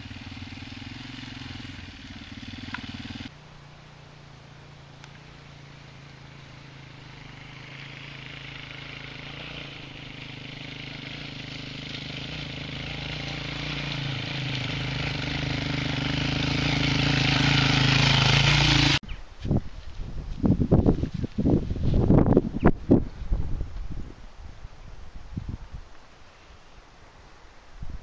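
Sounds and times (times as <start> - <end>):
motorcycle engine approaching: 0.0 - 19.1.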